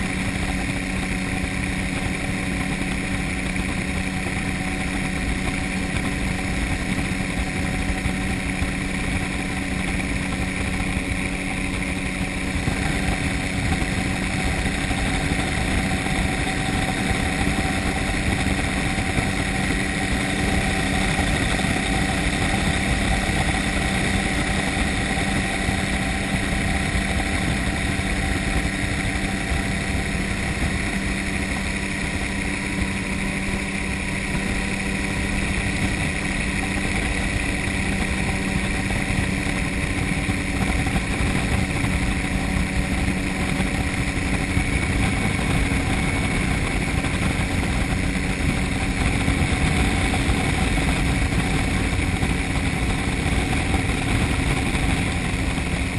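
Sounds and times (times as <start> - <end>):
gyrocopter engine drone: 0.0 - 55.9.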